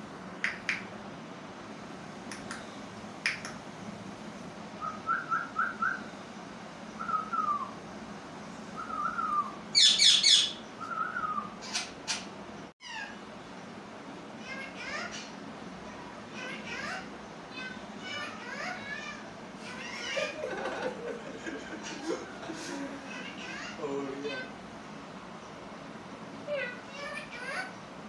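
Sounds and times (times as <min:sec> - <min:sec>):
sharp clicks: 0:02.3 - 0:02.6, 0:03.2 - 0:03.6
parakeet chirps: 0:08.8 - 0:13.2
parakeet harsh squawk: 0:09.8 - 0:10.6, 0:14.4 - 0:15.4, 0:16.4 - 0:20.4.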